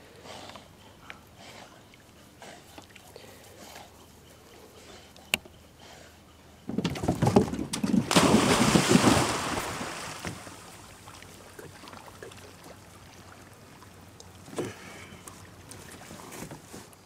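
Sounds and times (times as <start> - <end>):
dog splashing into water: 8.0 - 10.6
water lapping: 8.0 - 17.0.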